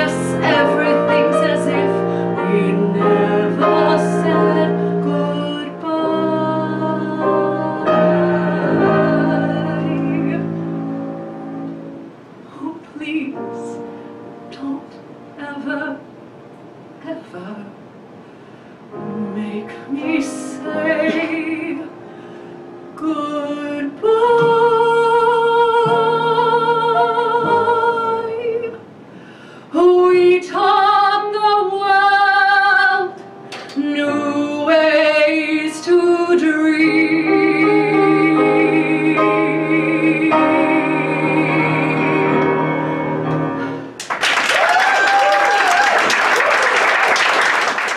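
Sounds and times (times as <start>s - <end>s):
woman singing ballad: 0.0s - 10.5s, 19.1s - 22.0s, 22.9s - 28.8s, 29.7s - 42.4s
piano accompaniment: 0.0s - 17.2s, 17.9s - 29.2s, 29.8s - 44.4s.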